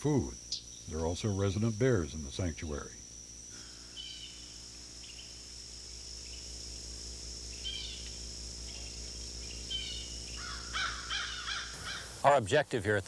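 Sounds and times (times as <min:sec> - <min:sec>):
high-pitched insect drone: 0:00.0 - 0:13.0
low steady hum: 0:00.0 - 0:13.0
bird calls: 0:00.4 - 0:02.1, 0:03.6 - 0:05.5, 0:07.4 - 0:12.2.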